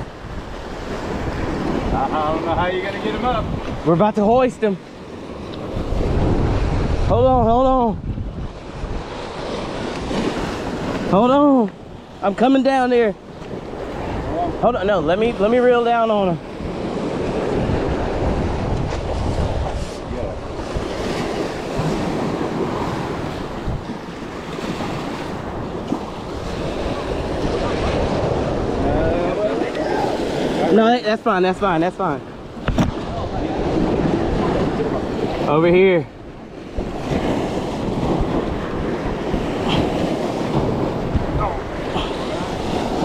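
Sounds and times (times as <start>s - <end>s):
surf washing against rocks: 0.0s - 43.0s
wind buffeting microphone: 0.0s - 43.0s
surf breaking on rocks: 36.6s - 43.0s.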